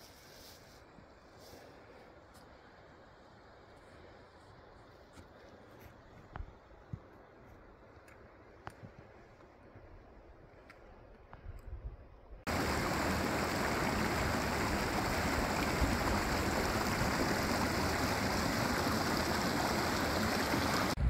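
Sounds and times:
running water rushing: 12.5s - 21.0s.

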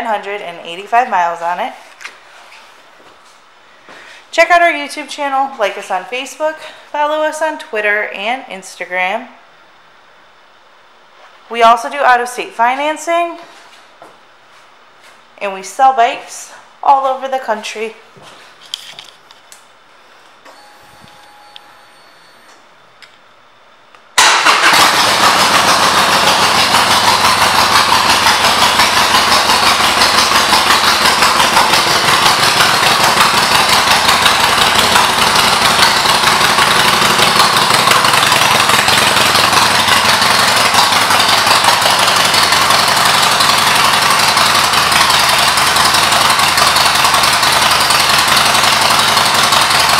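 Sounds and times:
motorcycle engine starting and idling: 24.2s - 49.9s.

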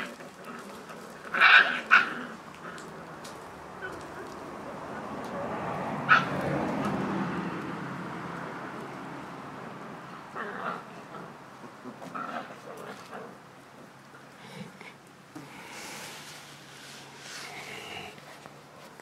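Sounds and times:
puppies yipping and barking: 0.0s - 2.4s, 6.1s - 6.4s
rustling noise: 15.6s - 19.0s.

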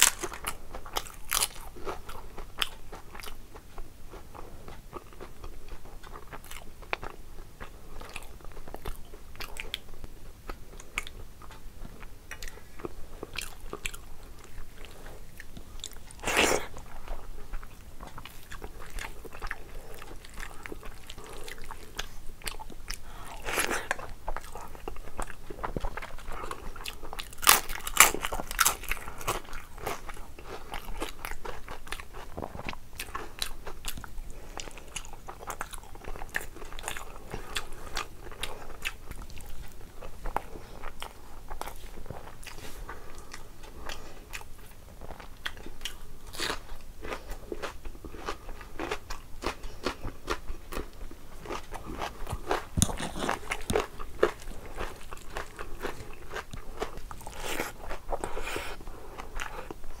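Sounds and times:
crunchy chewing: 0.0s - 60.0s
wet mouth clicks: 52.3s - 53.8s.

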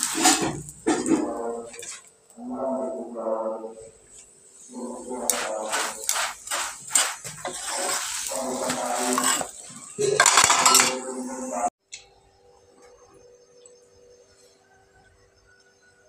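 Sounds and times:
metal spatula scraping griddle: 0.0s - 2.1s, 4.7s - 11.7s
background voices: 0.0s - 11.8s
utensils clattering: 5.3s - 11.4s.

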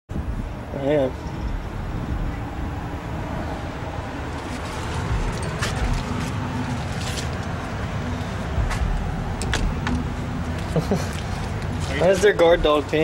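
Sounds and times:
road traffic rumble: 0.1s - 13.0s.

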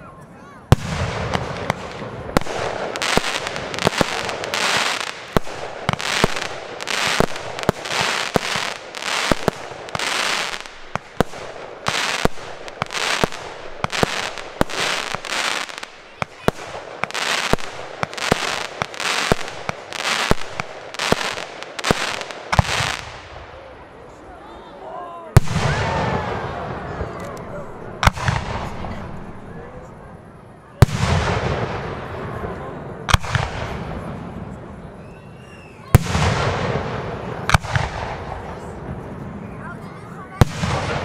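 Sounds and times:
fireworks bangs: 0.7s - 23.8s, 25.4s - 41.0s
hissing crackling rush: 0.9s - 24.0s.

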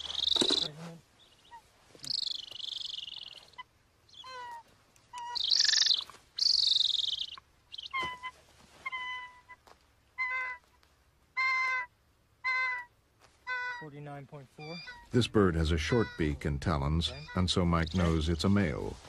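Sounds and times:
eagle yelping: 1.3s - 18.1s
eagle screaming: 11.4s - 14.0s, 14.6s - 18.0s.

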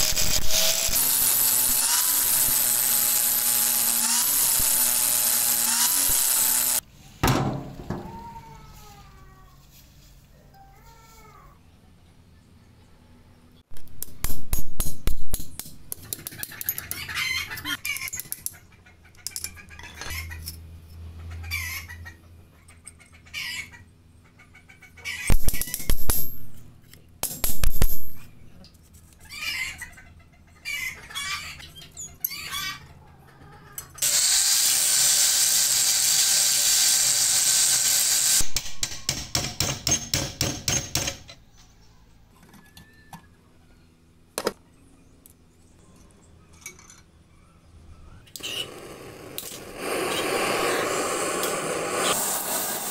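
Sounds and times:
hammer striking metal punch: 38.5s - 41.2s
steady hissing whirr: 48.3s - 52.9s.

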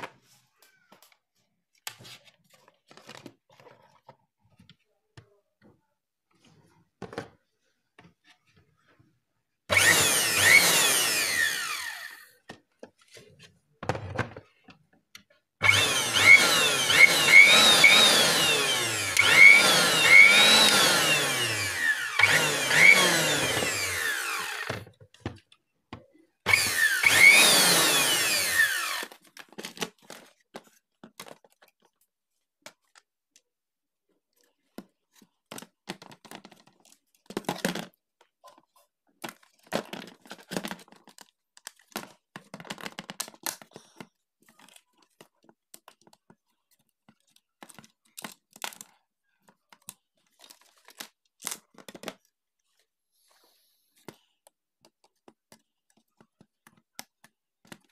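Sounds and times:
small electric motor whirring: 9.7s - 12.3s, 15.6s - 24.8s, 26.5s - 29.2s
plastic parts clicking and knocking: 9.7s - 52.9s, 54.0s - 57.9s.

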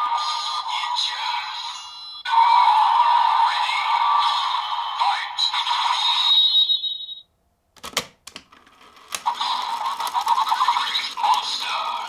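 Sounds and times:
plastic clicks: 7.8s - 12.0s
toy music: 8.8s - 12.0s
electronic toy sound effects: 8.9s - 12.0s.

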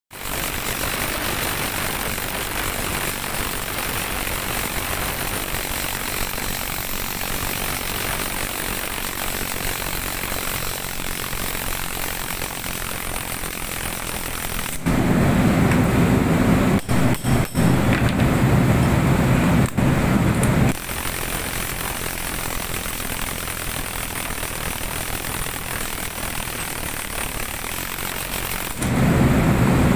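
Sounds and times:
impact wrench hammering: 0.1s - 14.9s, 16.8s - 18.2s.

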